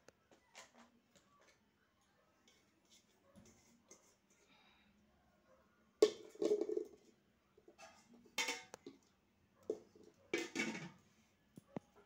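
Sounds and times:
spoon scraping and dishes clattering: 2.5 - 4.4, 6.0 - 9.0.

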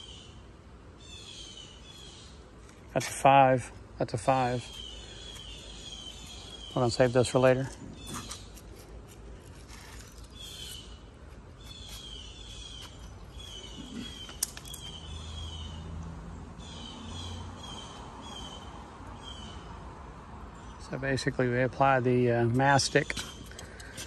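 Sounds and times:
bird calling: 0.0 - 0.4, 4.2 - 8.9, 9.5 - 15.9.

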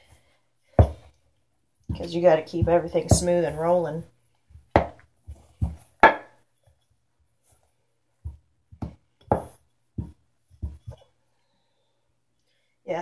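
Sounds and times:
dough thumping in a metal bowl: 1.9 - 3.8, 8.3 - 11.0.

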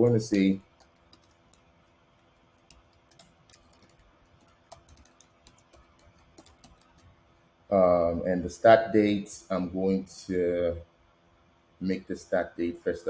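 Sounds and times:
computer keyboard keystrokes: 0.0 - 7.1
faint steady hum: 0.0 - 13.0.

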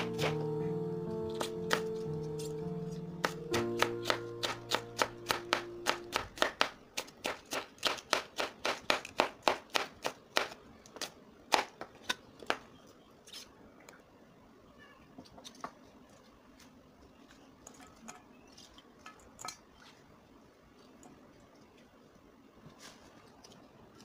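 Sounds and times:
knife chopping on cutting board: 0.0 - 0.4, 1.3 - 1.9, 3.2 - 10.6
background music: 0.0 - 6.3.

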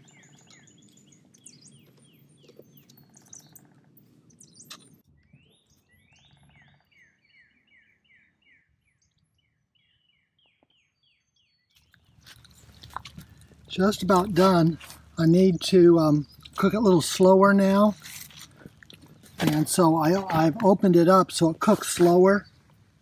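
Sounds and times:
soft outdoor background hiss: 11.9 - 23.0.

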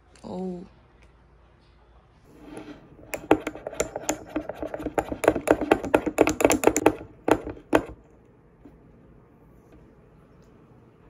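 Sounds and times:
sharp clicking taps: 3.1 - 8.0.

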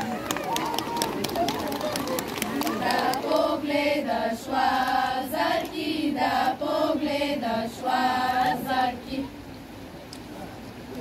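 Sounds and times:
girls singing together: 2.6 - 9.4.

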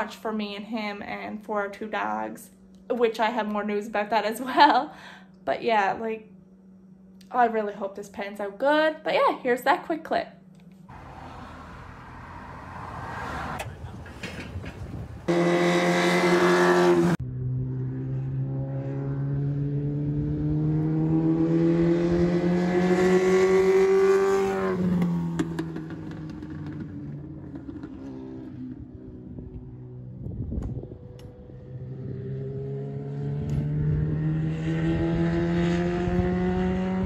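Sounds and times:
race car accelerating: 10.9 - 30.2, 30.9 - 37.0
motorcycle engine revving: 10.9 - 37.0.

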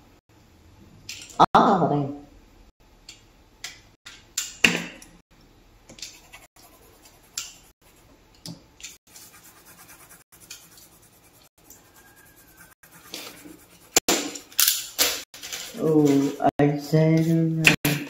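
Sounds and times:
scratching and rubbing strokes: 6.0 - 8.1, 8.9 - 14.1, 15.3 - 16.5.

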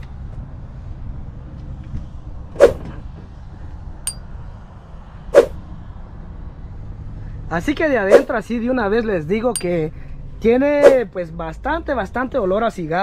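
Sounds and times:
small metallic clink: 9.5 - 9.8.

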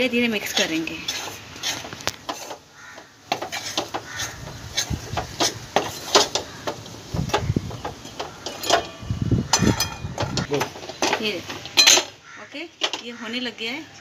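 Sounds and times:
spatula scraping metal pan: 0.4 - 2.7, 3.3 - 6.8.

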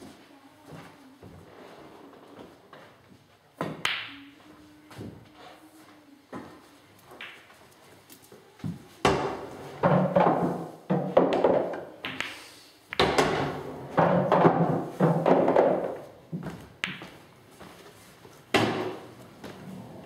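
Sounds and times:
pool balls knocking together: 9.0 - 16.2.

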